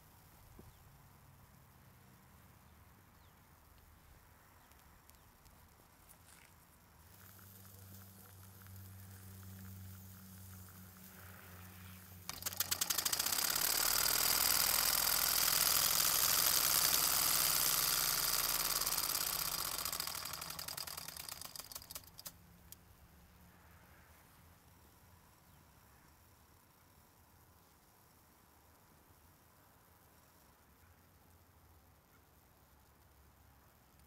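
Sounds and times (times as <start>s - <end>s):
toy steam engine chuffing: 7.1s - 22.4s.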